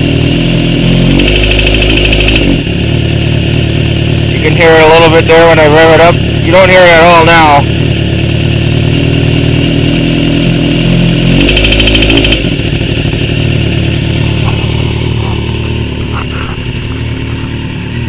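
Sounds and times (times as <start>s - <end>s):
motorcycle engine revving: 0.0s - 18.0s
fast ticking rattle: 1.2s - 2.5s, 11.4s - 13.3s.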